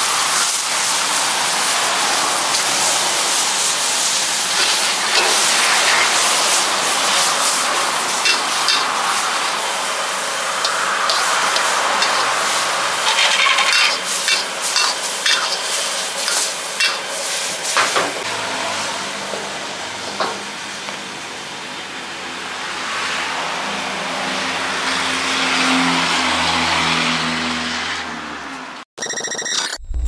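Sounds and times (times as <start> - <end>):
food sizzling: 0.0 - 18.3
spatula scraping a wok: 2.5 - 17.8
low hum: 29.8 - 30.0.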